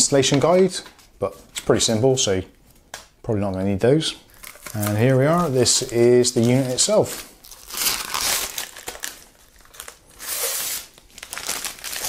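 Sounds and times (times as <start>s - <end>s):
plastic bag crinkling: 4.3s - 12.0s.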